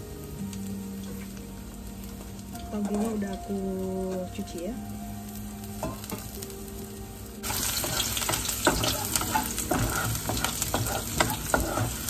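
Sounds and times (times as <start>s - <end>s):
garlic sizzling in hot oil: 0.0s - 12.0s
spatula scraping and knocking pan: 7.4s - 12.0s.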